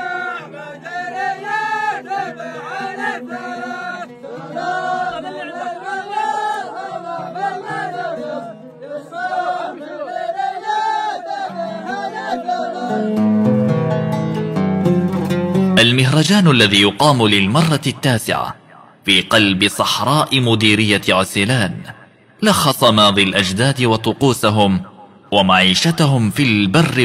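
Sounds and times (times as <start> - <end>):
men chanting in unison: 0.0 - 13.0.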